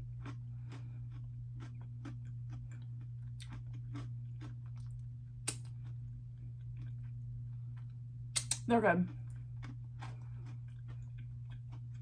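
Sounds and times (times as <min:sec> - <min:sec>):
person chewing crunchy snacks: 0:00.0 - 0:12.0.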